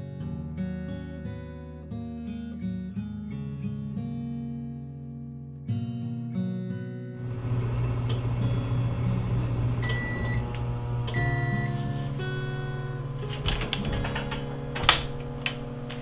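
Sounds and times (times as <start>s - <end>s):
guitar background music: 0.0s - 16.0s
oven door clunking open: 7.2s - 16.0s
oven fan humming: 7.2s - 16.0s.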